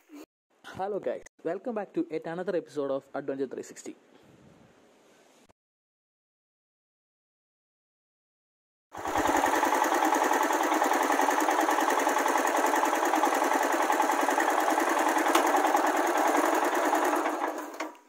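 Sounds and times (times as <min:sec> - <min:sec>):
motorcycle engine running: 0:09.0 - 0:17.7.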